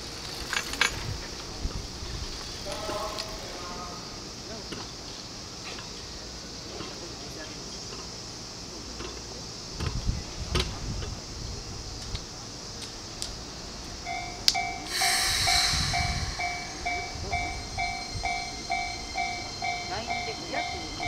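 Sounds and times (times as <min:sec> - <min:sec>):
low rumble of trains: 0:00.0 - 0:21.0
train air brakes hissing: 0:13.4 - 0:21.0.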